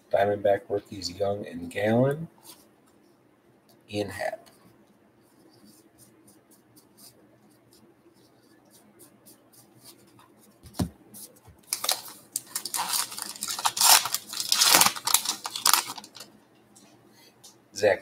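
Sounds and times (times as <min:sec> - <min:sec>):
wrapper ripping and rustling: 0:11.6 - 0:16.3.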